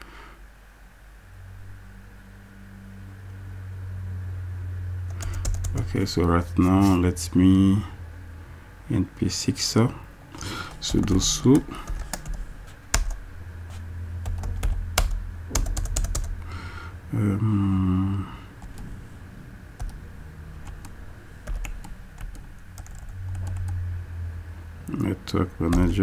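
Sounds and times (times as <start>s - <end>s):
keyboard typing: 5.1s - 6.0s, 10.4s - 13.2s, 14.2s - 16.5s, 18.6s - 18.9s, 19.8s - 20.0s, 20.6s - 23.8s, 25.7s - 26.0s
person humming: 16.4s - 18.6s.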